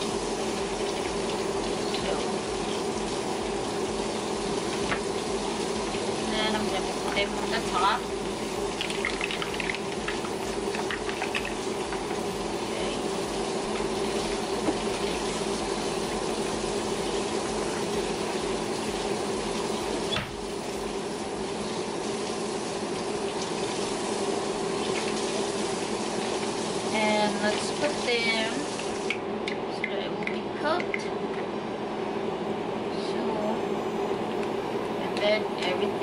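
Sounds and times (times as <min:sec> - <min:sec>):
broth boiling and bubbling: 0:00.0 - 0:36.0.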